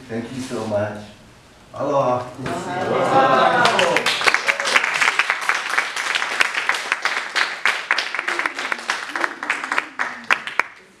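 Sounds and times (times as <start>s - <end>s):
voices: 1.9s - 4.1s
audience applauding: 2.8s - 11.0s.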